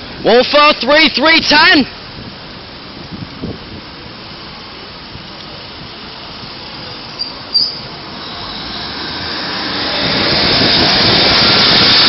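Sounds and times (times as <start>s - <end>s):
passenger train rolling: 0.0s - 12.0s
high-pitched squeals: 6.5s - 12.0s.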